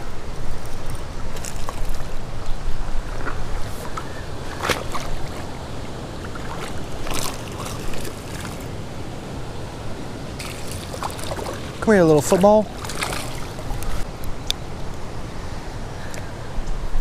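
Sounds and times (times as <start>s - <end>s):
river water sloshing: 0.0s - 14.2s
fish splashing at surface: 10.4s - 11.7s, 12.8s - 13.6s.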